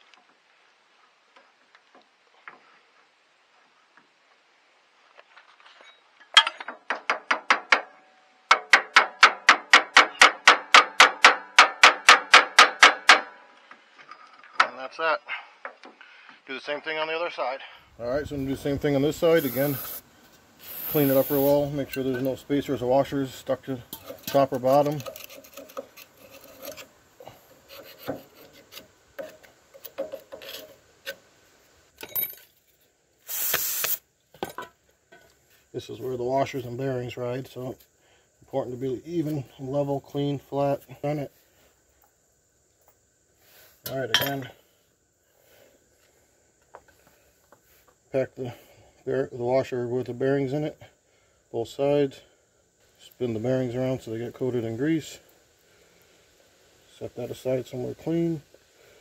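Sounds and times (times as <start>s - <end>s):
hammer striking metal pin: 6.4s - 13.4s
metal tool scraping inside steel bore: 23.9s - 29.4s.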